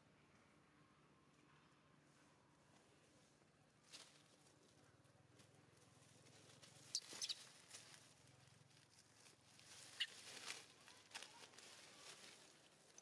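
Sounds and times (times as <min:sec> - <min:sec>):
dry leaves rustling: 0:05.4 - 0:13.0
monkey high squeaks: 0:06.9 - 0:07.4.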